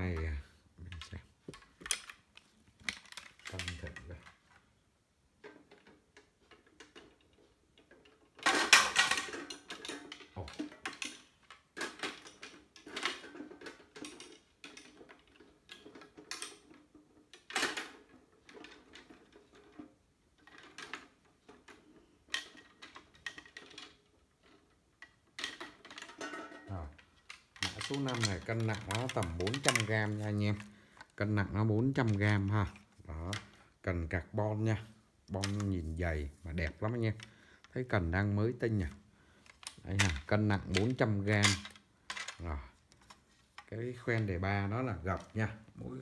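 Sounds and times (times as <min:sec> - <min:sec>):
rustling clatter: 0:00.0 - 0:04.8, 0:05.4 - 0:46.0.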